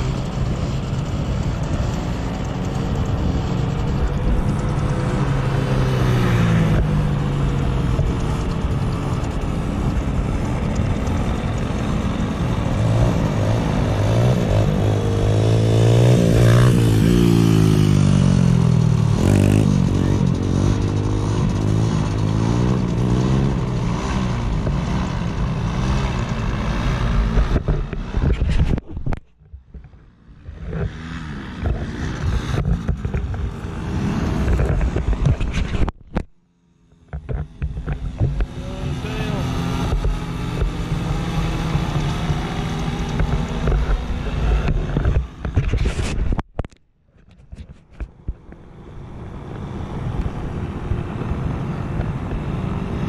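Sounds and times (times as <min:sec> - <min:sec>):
paramotor engines droning: 0:00.0 - 0:28.2, 0:36.7 - 0:45.6.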